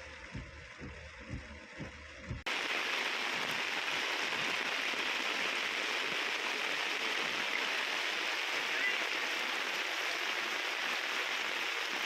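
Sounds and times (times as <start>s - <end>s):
low rhythmic thudding: 0.0s - 2.6s
heavy rain falling: 0.0s - 12.0s.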